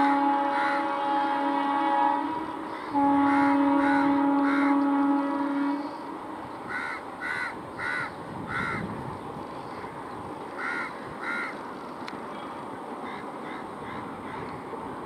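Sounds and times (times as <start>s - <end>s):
locomotive horn: 0.0s - 6.7s
crow cawing: 2.8s - 4.7s, 6.7s - 8.8s, 10.6s - 11.6s, 13.0s - 14.5s.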